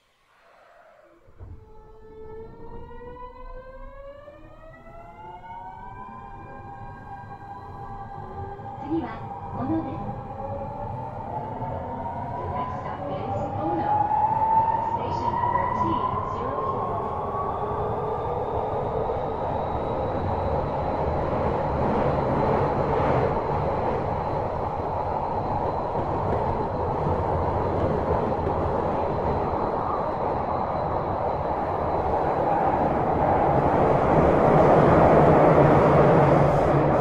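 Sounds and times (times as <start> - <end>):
train wheels rumbling on rail: 12.3 - 37.0.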